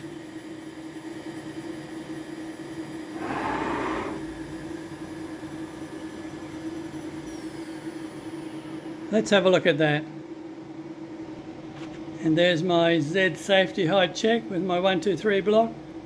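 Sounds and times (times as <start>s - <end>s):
short burst of hissing: 3.2s - 4.3s
cnc router machine hum: 3.2s - 4.5s.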